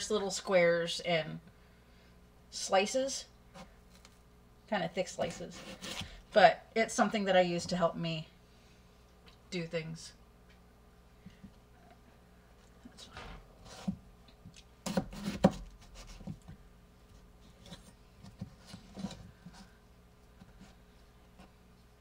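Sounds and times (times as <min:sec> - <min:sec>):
potato rubbing on board: 0:05.2 - 0:06.2, 0:14.9 - 0:16.4
knife slicing through potato: 0:05.3 - 0:06.2, 0:14.8 - 0:16.4.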